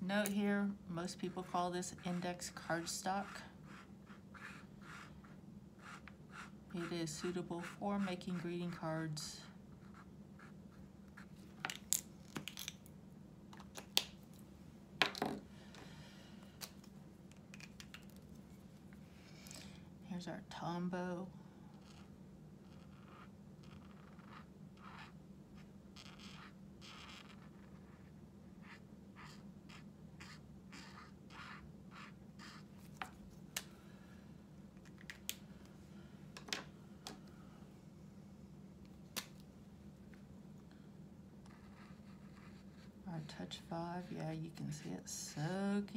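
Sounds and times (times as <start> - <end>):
marker scratching on cardstock: 1.4 - 8.8, 21.8 - 33.1, 41.5 - 44.2
pen caps clicking and knocking on desk: 15.0 - 15.4, 16.6 - 18.2.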